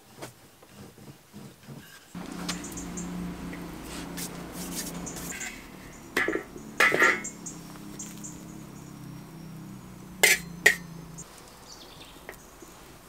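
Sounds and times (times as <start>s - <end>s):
metal tongs clinking on griddle: 5.2s - 7.4s, 10.2s - 10.9s.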